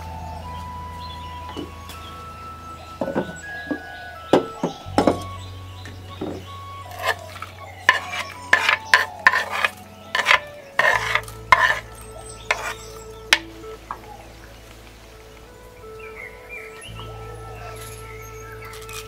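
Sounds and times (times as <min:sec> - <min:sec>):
spoon stirring in clay pot: 0:06.9 - 0:11.9, 0:12.5 - 0:13.5.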